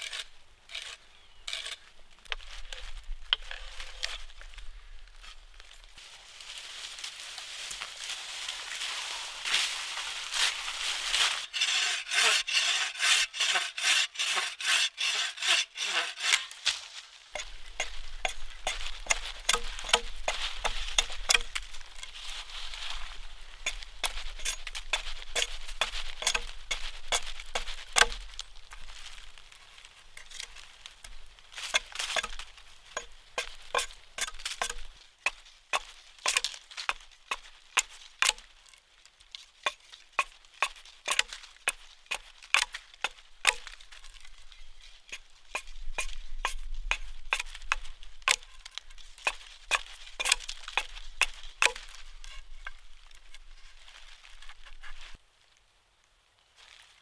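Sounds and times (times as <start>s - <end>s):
hatchet chopping wood: 17.4s - 21.6s, 23.7s - 28.2s, 31.6s - 32.4s, 33.0s - 38.5s, 39.6s - 43.8s, 45.1s - 48.5s, 49.2s - 52.0s.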